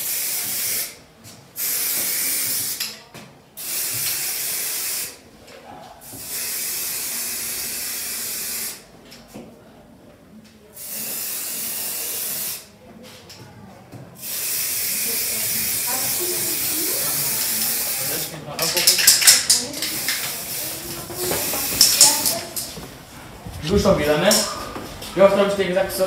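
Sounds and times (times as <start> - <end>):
spray paint can hissing: 0.0 - 1.0, 1.6 - 2.9, 3.6 - 5.2, 6.1 - 8.8, 10.8 - 12.7, 14.2 - 22.7.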